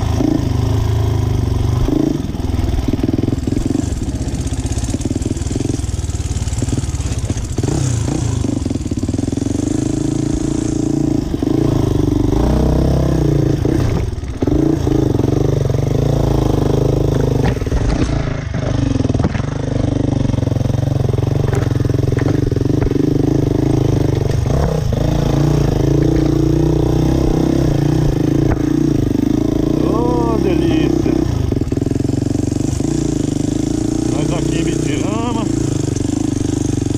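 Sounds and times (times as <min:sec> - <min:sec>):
dirt bike engine revving: 0:00.0 - 0:36.9.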